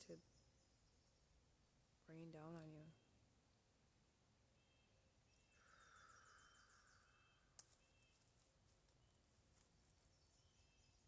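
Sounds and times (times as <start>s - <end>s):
faint bird chirps: 0.0s - 3.3s, 4.5s - 8.4s, 9.0s - 11.0s
descending bird chirps: 4.6s - 8.2s.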